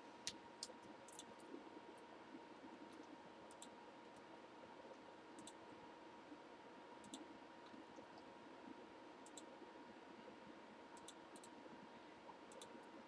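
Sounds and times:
faint computer mouse clicks: 0:00.3 - 0:01.4, 0:02.9 - 0:03.8, 0:05.4 - 0:05.6, 0:07.0 - 0:08.3, 0:09.2 - 0:09.5, 0:11.0 - 0:11.6, 0:12.5 - 0:12.9.

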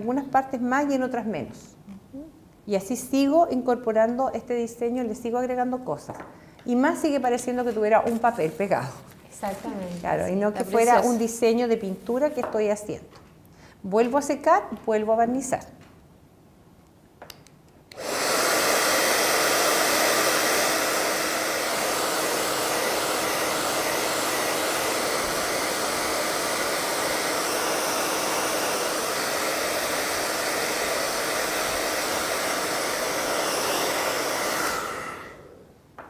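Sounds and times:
hair dryer blowing: 0:17.9 - 0:35.7.

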